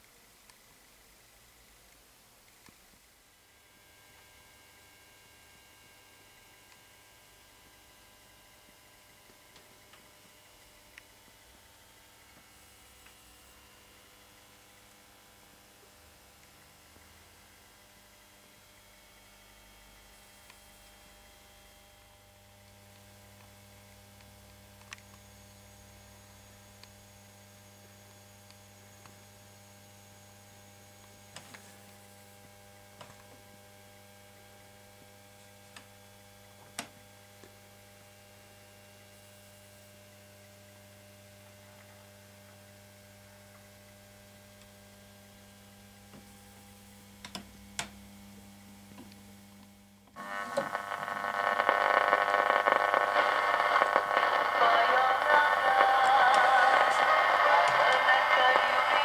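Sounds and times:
faint mains hum: 0.0 - 59.0
broadcast music from radio: 50.2 - 59.0
radio static: 50.2 - 59.0.

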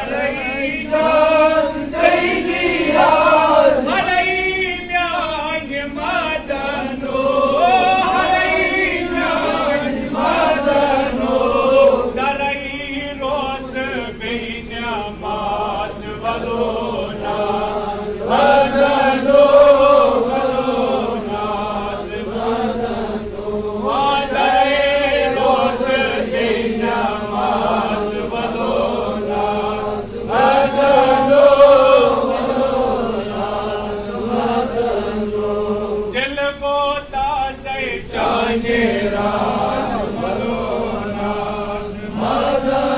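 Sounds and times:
man chanting: 3.2 - 10.1, 11.7 - 17.4, 35.9 - 39.2.

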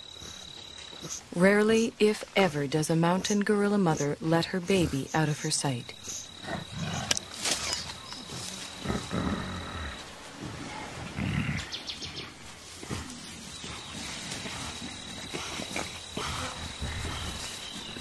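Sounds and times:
high insect whine: 3.5 - 11.7
gorilla grunting: 6.4 - 10.1.

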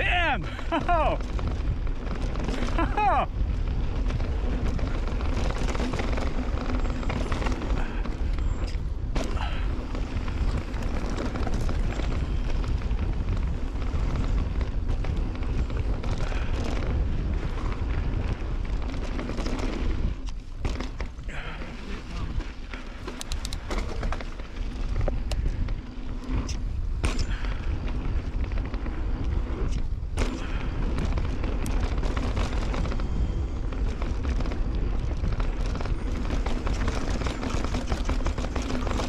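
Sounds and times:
bike rattling over bumps: 0.0 - 39.0
bike tyres running over dirt: 0.0 - 39.0
wind buffeting microphone: 0.0 - 39.0.

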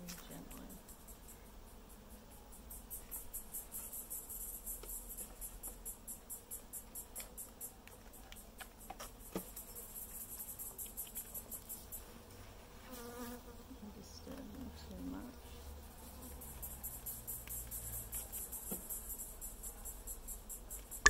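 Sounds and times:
high insect chirp: 0.4 - 7.8.

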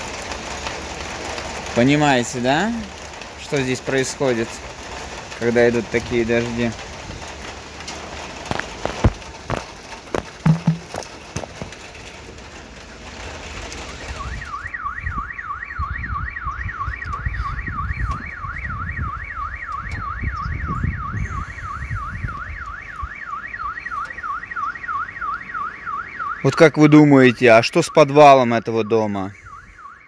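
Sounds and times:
rain hissing: 0.0 - 14.5
drips knocking: 8.5 - 11.8
car alarm warbling: 10.2 - 11.0, 14.2 - 30.0.

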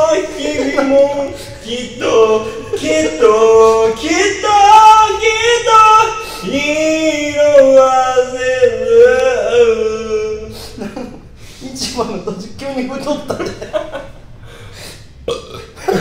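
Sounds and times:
karaoke backing track: 0.0 - 10.8
man singing karaoke: 0.0 - 10.8.

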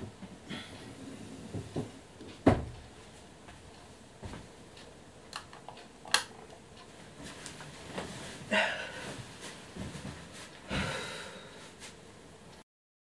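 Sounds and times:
bedding rustling: 6.9 - 12.1.

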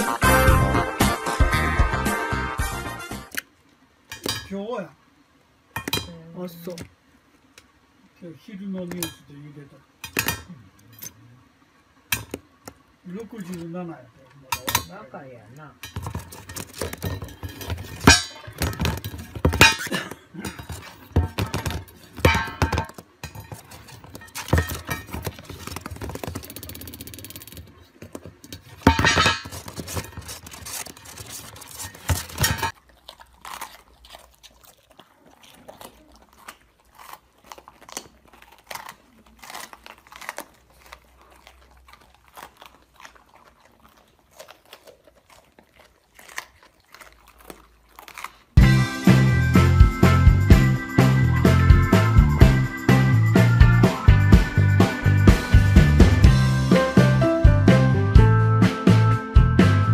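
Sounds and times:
dogs crunching peppers: 12.0 - 57.2.

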